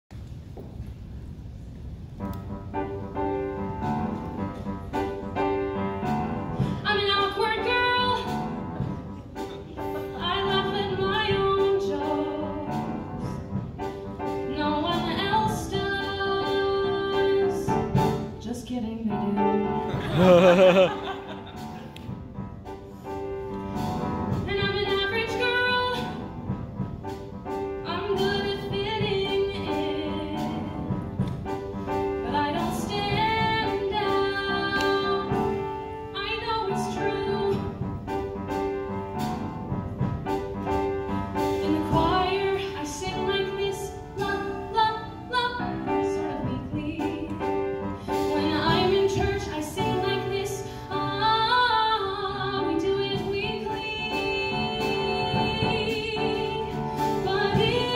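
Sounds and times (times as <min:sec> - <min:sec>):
piano chords: 0:02.0 - 0:57.9
woman singing into a microphone: 0:32.2 - 0:37.6, 0:41.6 - 0:47.6, 0:48.2 - 0:57.9.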